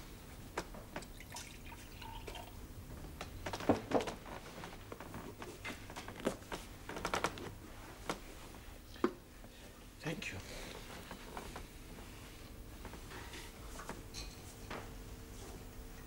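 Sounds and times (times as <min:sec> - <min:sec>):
liquid dripping and pouring: 0:01.0 - 0:02.6.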